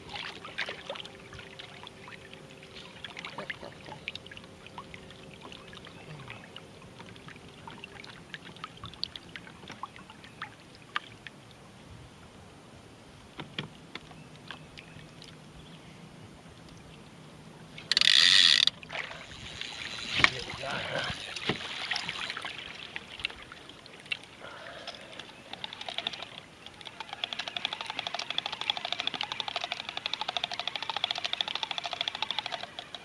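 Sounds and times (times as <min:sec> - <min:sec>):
water lapping against a canoe: 0:00.0 - 0:11.3, 0:18.6 - 0:27.9
faint steady hum: 0:00.0 - 0:28.8.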